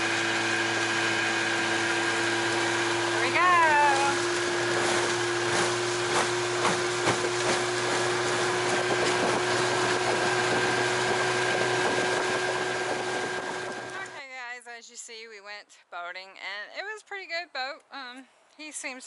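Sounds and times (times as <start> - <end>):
boat motor whine: 0.0 - 14.2
wind and water rushing: 0.0 - 14.2.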